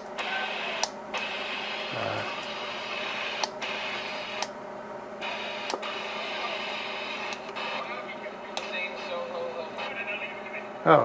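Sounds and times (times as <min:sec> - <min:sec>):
radio static hiss: 0:00.0 - 0:04.5, 0:05.1 - 0:11.0.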